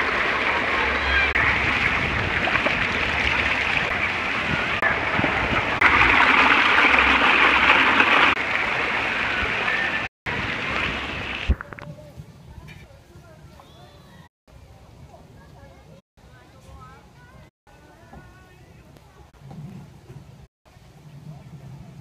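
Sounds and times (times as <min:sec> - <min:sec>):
water spraying and splashing: 0:00.0 - 0:11.7.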